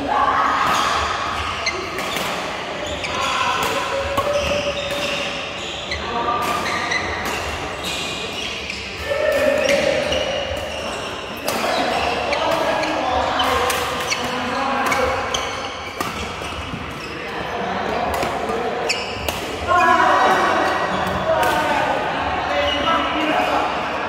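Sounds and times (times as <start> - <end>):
players' voices: 0.0 - 24.0
racket hitting shuttlecock: 0.6 - 10.7, 11.4 - 17.0, 18.0 - 19.6.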